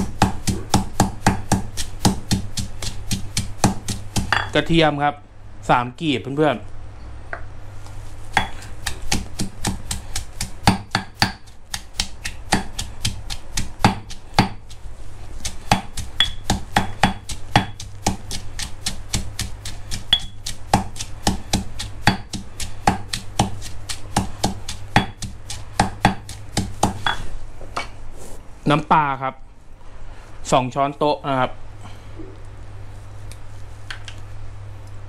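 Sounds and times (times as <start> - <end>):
stone pestle pounding in mortar: 0.0 - 4.6, 8.3 - 14.8, 15.4 - 27.2.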